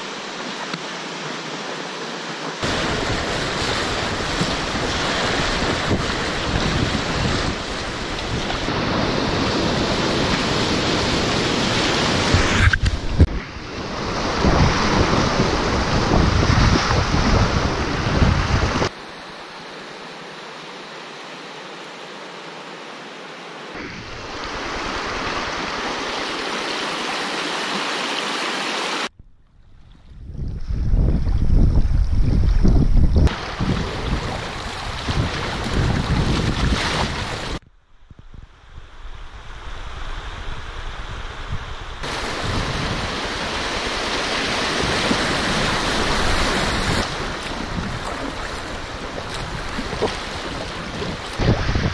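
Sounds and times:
river rapids rushing and splashing: 0.0s - 29.1s, 42.0s - 51.9s
wind buffeting microphone: 2.6s - 18.9s, 29.2s - 51.9s.

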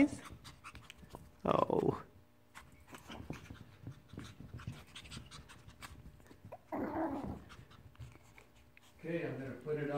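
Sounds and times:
puppies panting: 2.6s - 9.6s.

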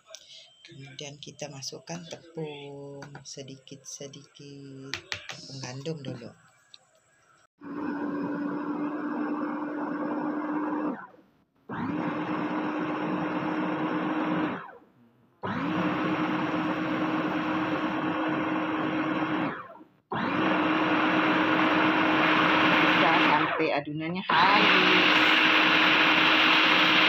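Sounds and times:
electric food chopper whirring: 7.6s - 14.8s, 15.4s - 23.6s, 24.3s - 27.0s.

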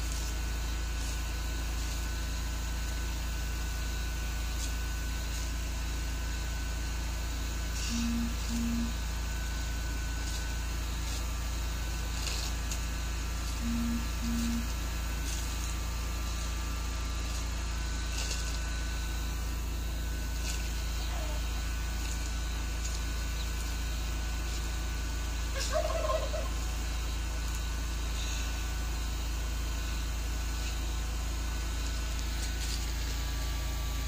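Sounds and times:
steady low hum: 0.0s - 34.0s
low double tone: 7.7s - 10.4s, 13.3s - 22.6s
tortoise chewing lettuce: 7.7s - 25.6s.

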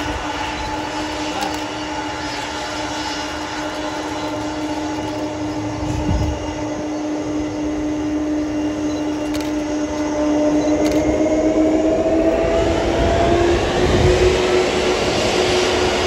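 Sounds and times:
jet engines whining: 0.0s - 16.0s.

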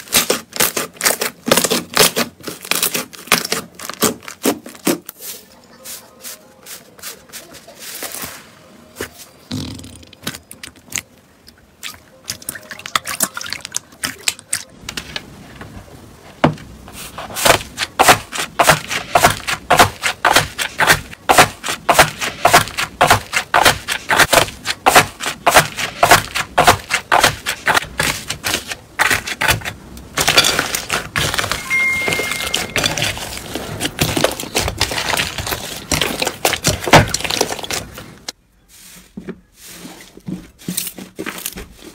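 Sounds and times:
slime squishing and crackling: 0.0s - 5.1s, 17.2s - 31.7s, 32.5s - 38.3s.

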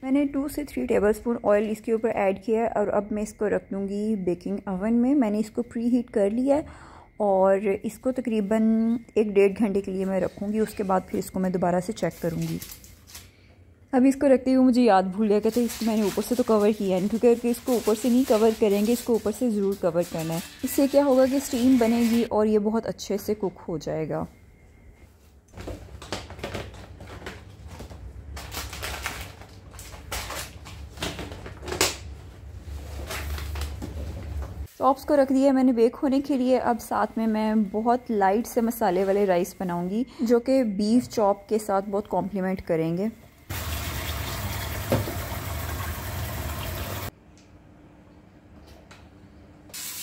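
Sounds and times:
plastic packets crinkling: 15.4s - 22.3s, 26.0s - 31.7s
oil sizzling in pan: 43.5s - 47.1s, 49.7s - 50.0s
tap water running into tub: 43.5s - 47.1s.

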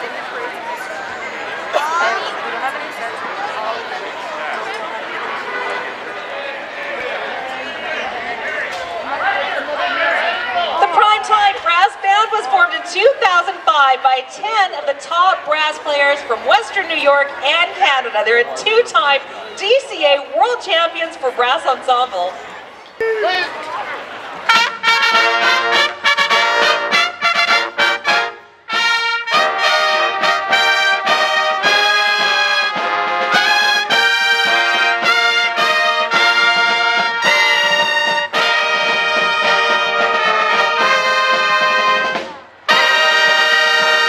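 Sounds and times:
brass band playing: 9.2s - 21.7s, 24.4s - 44.0s.

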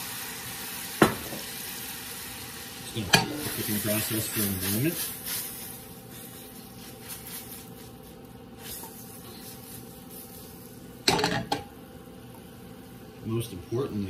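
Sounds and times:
vegetables sizzling in a pan: 0.0s - 13.3s
pan clanking on stove grate: 11.0s - 11.7s.

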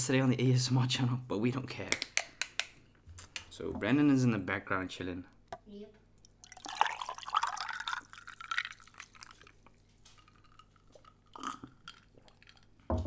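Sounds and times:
iced tea pouring into glass: 6.2s - 12.8s
person gulping: 6.2s - 13.0s.

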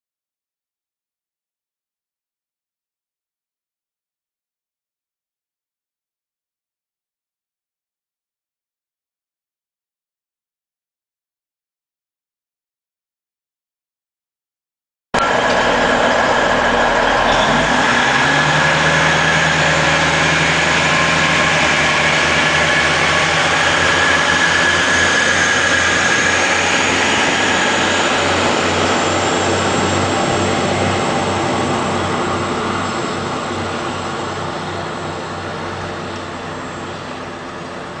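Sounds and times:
diesel railcar engines: 15.2s - 38.0s
wheels rumbling on track: 15.2s - 38.0s.

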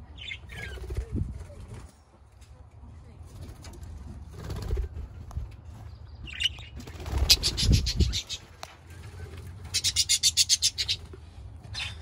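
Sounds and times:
budgies flapping wings: 4.3s - 5.2s, 6.8s - 11.1s
budgerigars chirping: 6.3s - 8.4s, 9.7s - 11.1s.

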